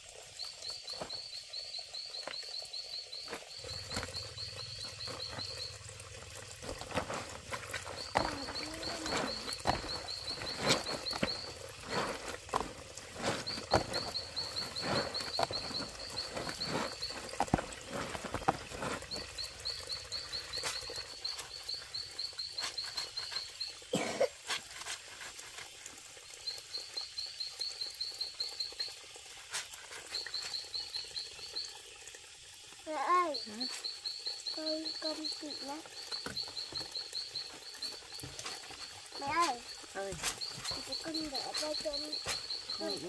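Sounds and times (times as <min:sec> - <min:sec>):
clothes scrubbed in soapy water: 0:03.3 - 0:23.6, 0:37.4 - 0:43.0
small animal chirping: 0:07.8 - 0:18.0, 0:39.1 - 0:43.0.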